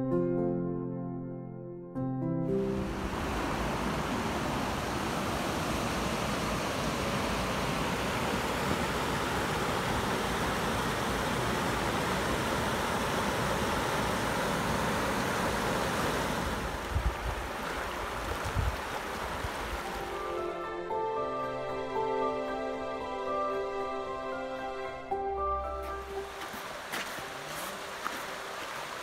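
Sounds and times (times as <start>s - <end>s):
music: 0.0s - 3.1s, 19.8s - 29.0s
river rushing over rocks: 2.8s - 20.5s, 26.0s - 29.0s.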